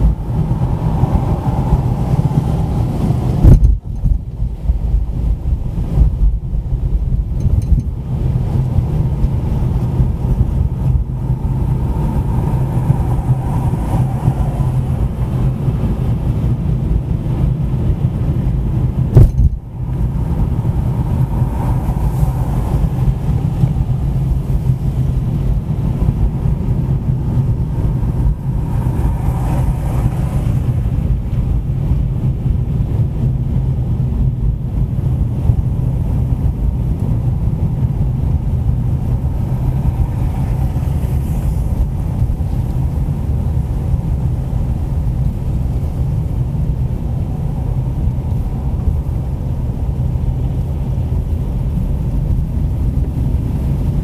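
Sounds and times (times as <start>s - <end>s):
car engine and tyres rumbling: 0.0s - 54.0s
sharp thump: 3.4s - 4.2s, 19.1s - 19.6s.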